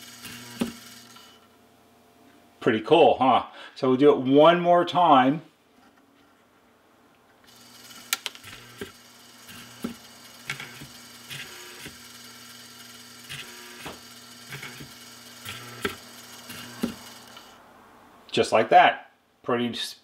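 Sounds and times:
drum motor humming: 0.0 - 1.4, 7.5 - 17.6.

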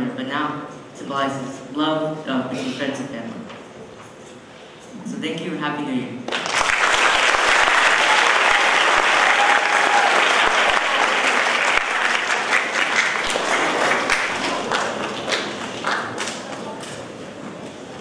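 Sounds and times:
audience applauding: 6.3 - 16.8.

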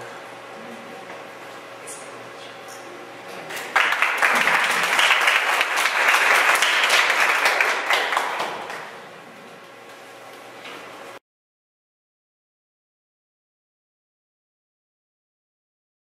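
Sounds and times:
audience applause: 3.6 - 9.0.

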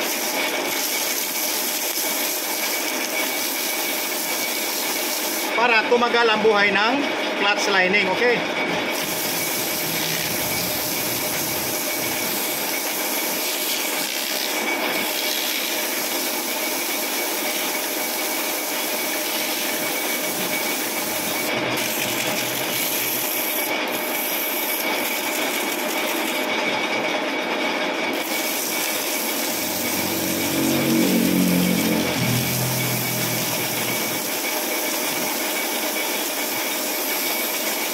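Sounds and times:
lathe running: 0.0 - 37.9
sandpaper rasping on metal: 8.9 - 26.5.

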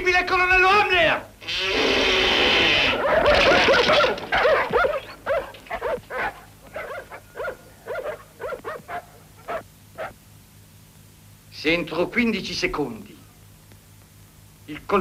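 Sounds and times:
dogs barking: 2.9 - 10.2.

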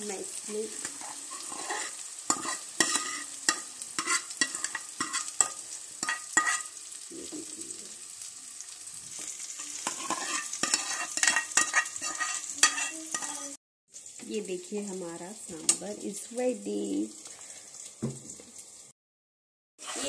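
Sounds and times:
hot oil sizzling: 0.0 - 19.0, 19.8 - 20.0
ladle scraping a metal pan: 0.9 - 6.7, 9.6 - 13.5, 19.8 - 20.0.

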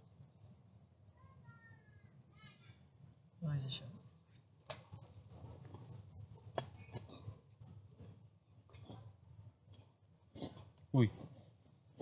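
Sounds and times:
high insect trill: 4.8 - 8.2.

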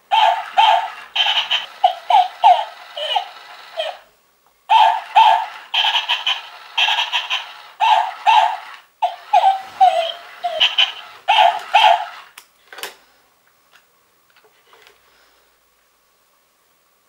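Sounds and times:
toy dog electronic yaps: 0.1 - 4.1, 4.7 - 12.4
faint handling noises: 12.4 - 15.9.

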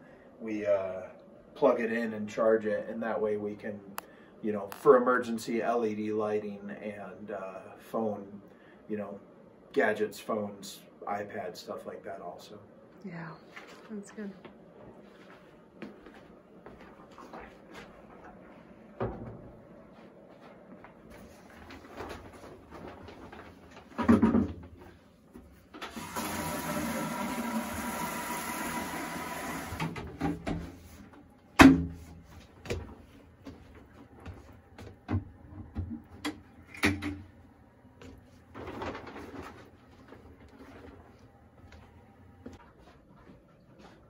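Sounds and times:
objects knocking and clattering: 21.8 - 24.8.

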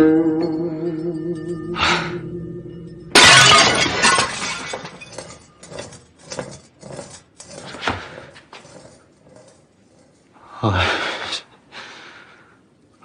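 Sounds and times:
porcelain vase smashing: 3.0 - 10.2
shards clinking: 3.0 - 10.4.

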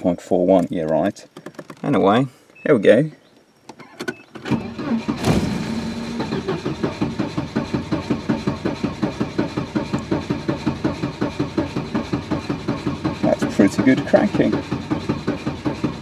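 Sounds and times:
starter motor cranking engine: 3.8 - 16.0.

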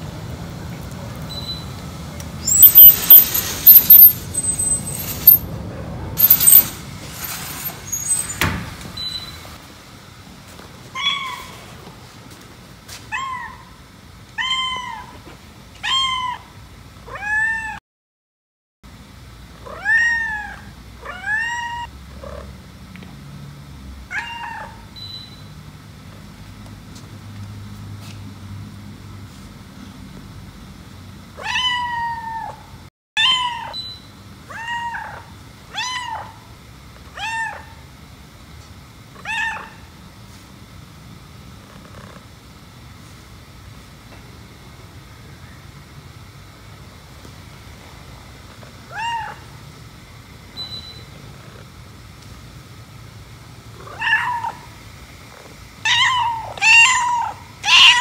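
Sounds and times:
cat meowing: 10.9 - 11.6, 13.1 - 13.8, 14.4 - 15.2, 15.8 - 16.5, 17.1 - 17.8, 19.6 - 21.9, 24.1 - 24.8, 31.4 - 32.6, 33.2 - 33.9, 34.5 - 36.4, 37.2 - 37.8, 39.2 - 39.9, 48.9 - 49.6, 53.9 - 54.7, 55.8 - 58.0.

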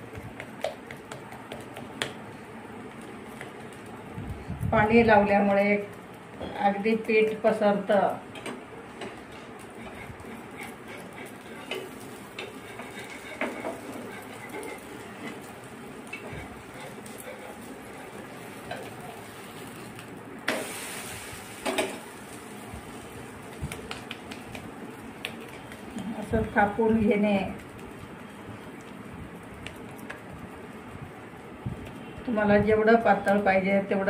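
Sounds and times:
faint frying sizzle: 0.0 - 34.0
metal turner scraping a pan: 9.0 - 19.7.

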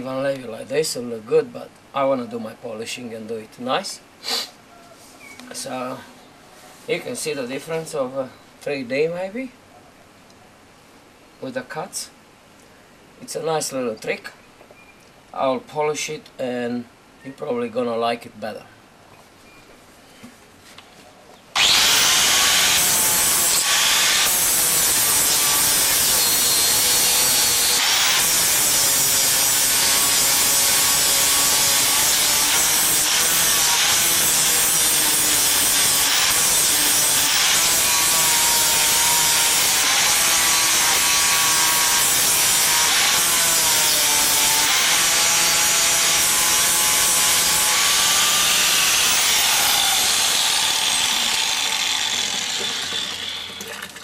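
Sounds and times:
angle grinder grinding steel: 21.6 - 53.8.

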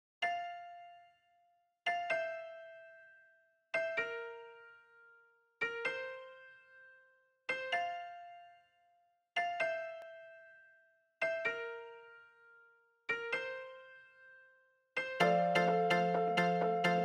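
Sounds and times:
slow piano-like keyboard notes: 3.8 - 8.7, 11.2 - 14.4, 15.0 - 17.0.

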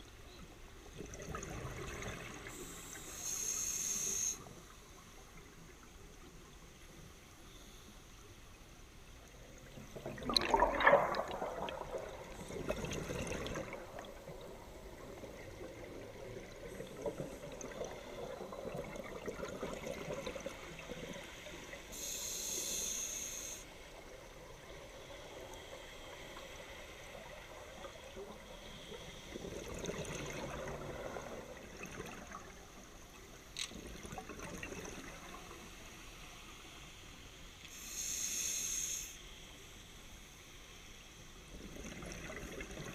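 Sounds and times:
hissing regulator inhale: 2.5 - 4.5, 21.3 - 23.9, 37.7 - 39.5
bubbly regulator exhalations: 10.0 - 14.3.

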